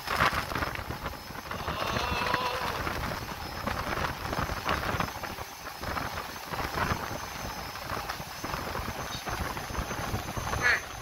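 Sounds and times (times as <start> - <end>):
wind buffeting microphone: 0.0 - 11.0
wind simulator fans blowing hard: 0.0 - 11.0.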